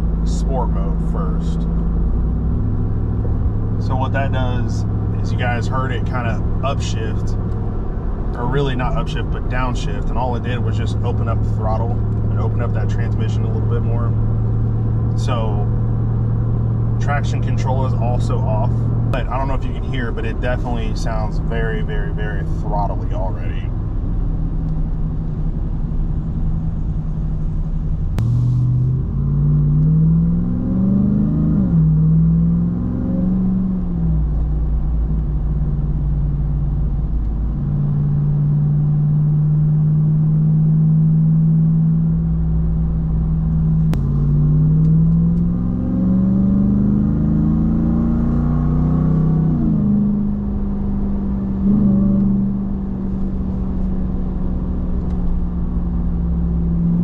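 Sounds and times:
engine revving through gears: 28.2s - 34.7s, 43.4s - 57.0s.

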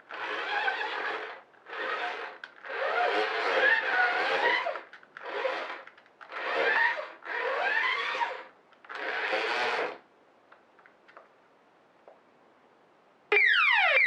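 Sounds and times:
toy robot motors whirring: 0.1s - 10.0s.

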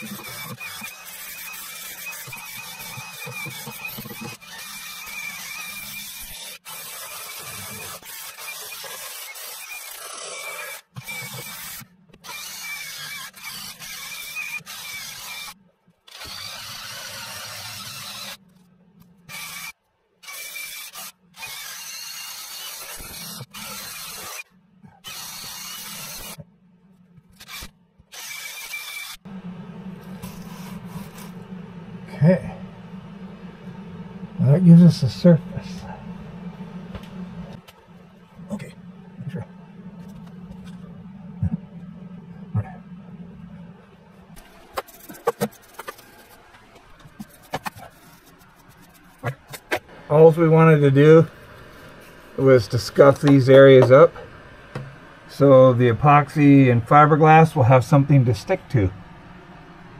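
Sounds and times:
drill motor whine: 0.0s - 18.4s, 19.3s - 24.4s, 25.0s - 26.4s, 27.4s - 36.4s
wire wheel rasping fiberglass: 0.0s - 18.7s, 44.4s - 54.0s.

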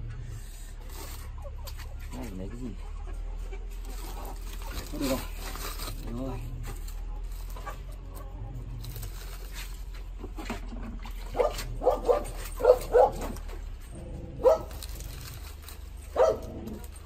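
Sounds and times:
dog barking: 11.3s - 13.4s, 14.4s - 14.8s, 16.1s - 16.6s.

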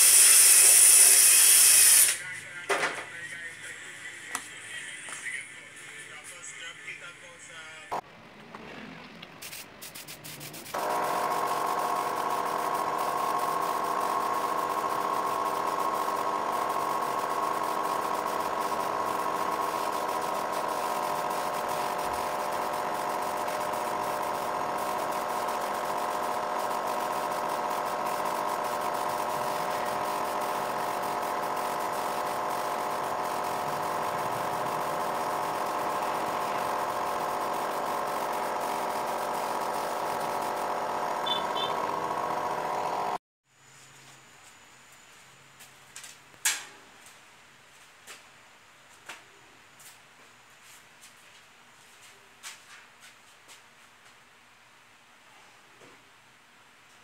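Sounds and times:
air compressor humming: 0.0s - 3.1s, 9.4s - 43.2s.

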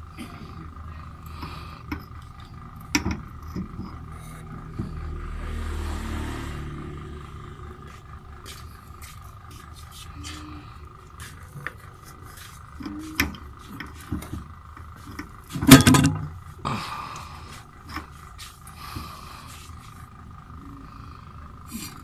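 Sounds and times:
light metallic clicks and knocks: 1.4s - 5.0s
loud metal clank: 15.6s - 16.4s.

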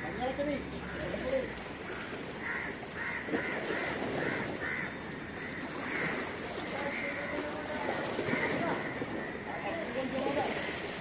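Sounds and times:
outdoor background noise: 0.0s - 11.0s
crow cawing: 1.8s - 9.6s.

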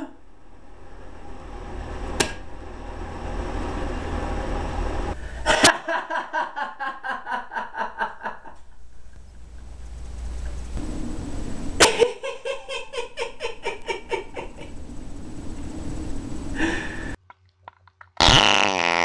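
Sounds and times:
faint low hum: 0.0s - 17.2s
man laughing: 5.4s - 9.2s, 11.8s - 14.7s.

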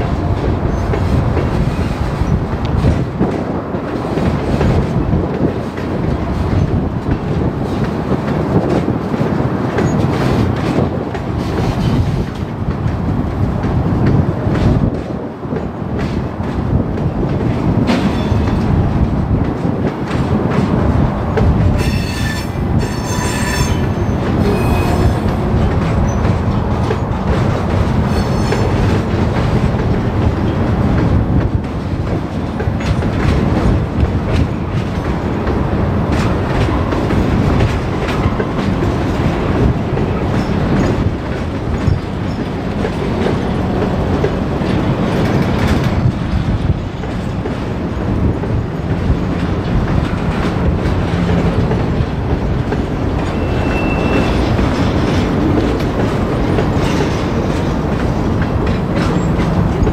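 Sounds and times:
freight train rumbling past: 0.0s - 59.9s
train wheels squealing: 21.8s - 25.3s, 28.0s - 28.8s, 41.8s - 42.5s, 53.2s - 55.2s.

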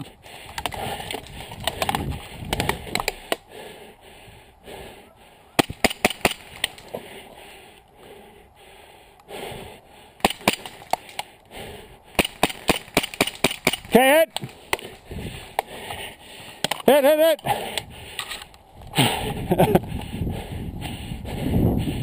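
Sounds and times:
airsoft gunfire cracks: 5.6s - 6.8s, 10.2s - 11.0s, 12.2s - 14.0s.

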